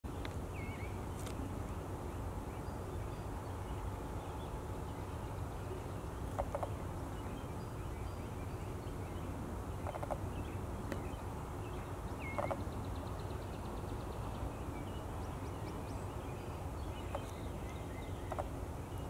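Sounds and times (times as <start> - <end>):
rattling bird calls: 6.3 - 6.8, 9.8 - 10.2, 12.2 - 12.7, 18.2 - 18.5.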